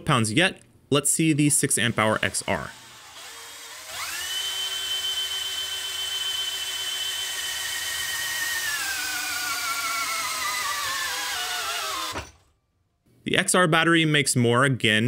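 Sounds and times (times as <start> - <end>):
drill motor and gear whine: 2.0 - 12.4.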